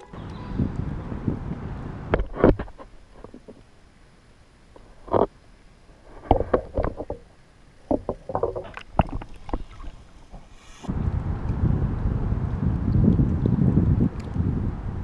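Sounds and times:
handling knocks and rubbing on kayak: 0:02.1 - 0:03.6, 0:06.0 - 0:10.6.

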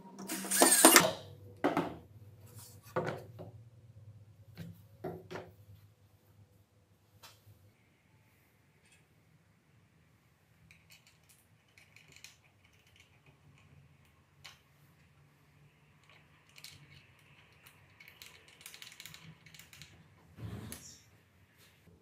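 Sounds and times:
small metal clicks and scrapes: 0:10.7 - 0:15.1, 0:16.0 - 0:20.0.

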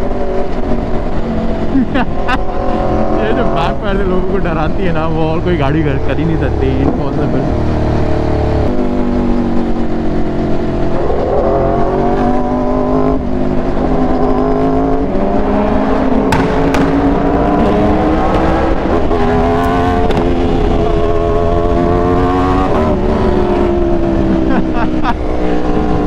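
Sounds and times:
motorcycle engine running: 0:13.0 - 0:26.0.

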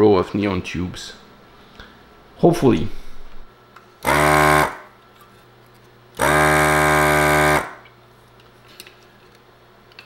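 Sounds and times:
desoldering pump motor hum: 0:03.4 - 0:05.0, 0:06.1 - 0:08.0.

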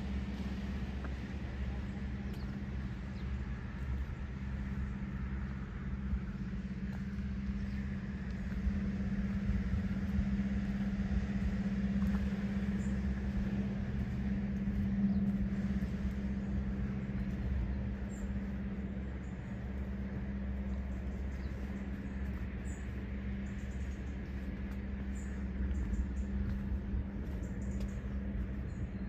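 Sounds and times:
engine humming: 0:00.0 - 0:29.0.

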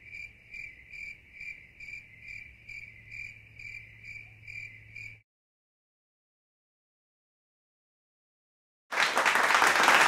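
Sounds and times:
cricket chirping: 0:00.0 - 0:05.2.

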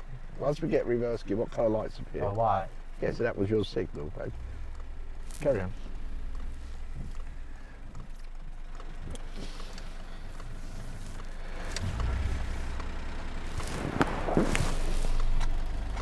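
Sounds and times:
car engine at low revs: 0:00.0 - 0:16.0.

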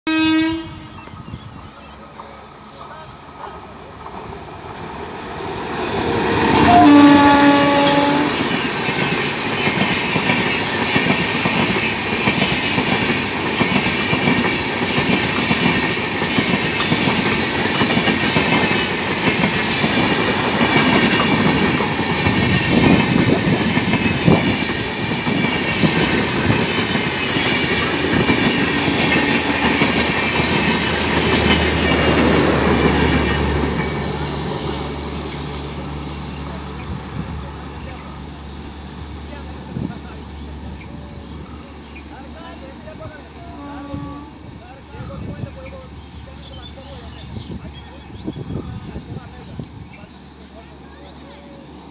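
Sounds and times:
locomotive horn blast: 0:00.1 - 0:01.0, 0:06.4 - 0:08.5, 0:43.5 - 0:44.5
train wheels clattering over rail joints: 0:07.8 - 0:35.5.

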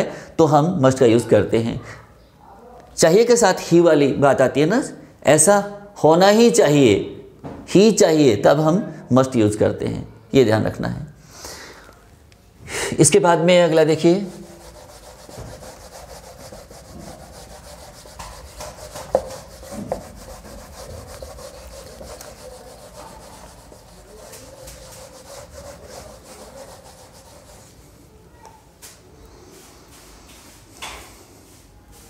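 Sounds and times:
duster scrubbing whiteboard: 0:13.7 - 0:28.0.

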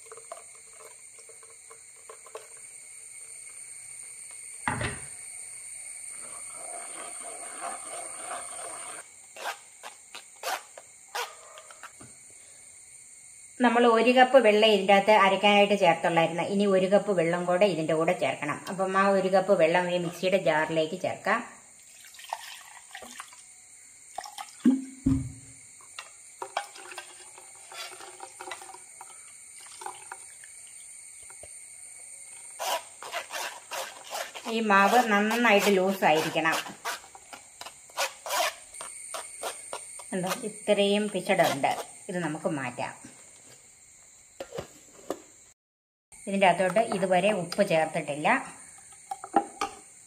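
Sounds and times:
spoon scraping metal strainer: 0:06.1 - 0:09.7, 0:26.5 - 0:28.8, 0:32.6 - 0:37.2.

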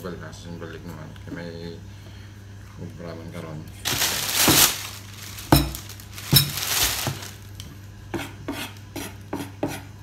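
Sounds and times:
kitchenware knocking on tabletop: 0:05.5 - 0:07.2.

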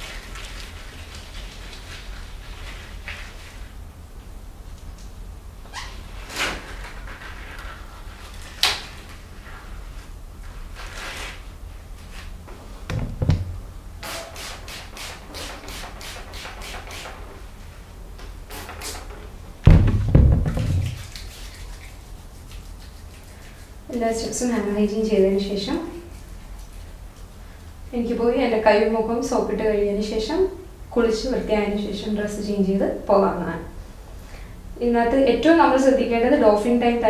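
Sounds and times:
spray bottle thump on desk: 0:19.7 - 0:21.1.

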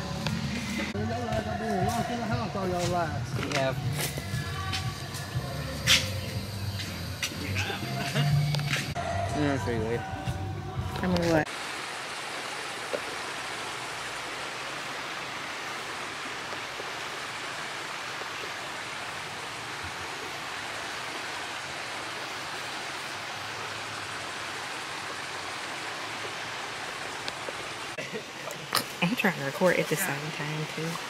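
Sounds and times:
flowing river water: 0:00.0 - 0:31.0.

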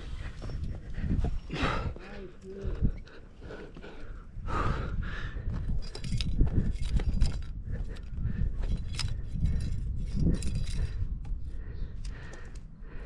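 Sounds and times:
metal climbing gear clinking: 0:00.0 - 0:04.2, 0:05.4 - 0:12.8.

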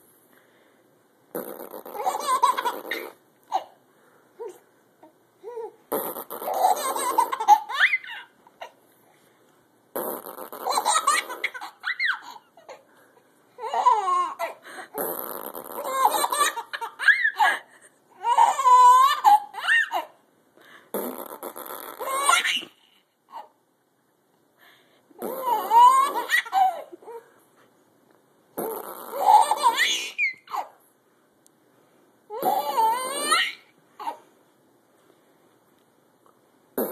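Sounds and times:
man making mouth noises: 0:01.3 - 0:03.2, 0:05.9 - 0:06.8, 0:09.9 - 0:11.4, 0:14.9 - 0:16.1, 0:20.9 - 0:22.2, 0:25.2 - 0:25.6, 0:28.6 - 0:29.3
baby laughing: 0:01.5 - 0:03.8, 0:05.4 - 0:08.8, 0:10.2 - 0:12.9, 0:13.6 - 0:20.2, 0:21.8 - 0:23.6, 0:25.2 - 0:27.3, 0:28.7 - 0:30.8, 0:32.3 - 0:34.2.

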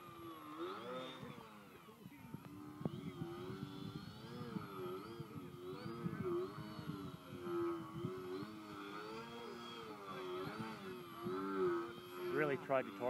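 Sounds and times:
model plane motor whining: 0:00.0 - 0:13.0.

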